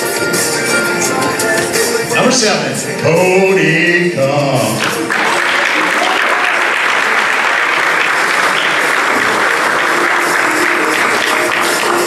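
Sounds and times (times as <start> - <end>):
music: 0.0 - 12.0
audience applauding: 4.8 - 12.0.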